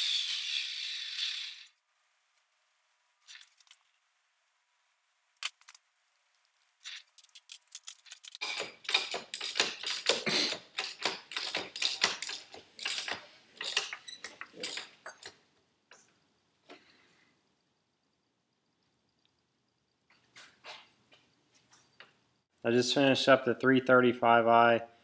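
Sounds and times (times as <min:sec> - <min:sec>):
metallic clicking and clatter: 0:05.4 - 0:15.4.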